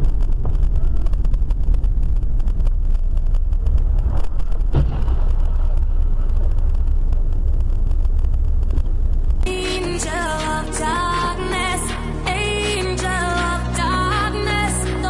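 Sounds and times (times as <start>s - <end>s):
car road and engine rumble: 0.0s - 15.0s
brief thump: 4.1s - 5.5s.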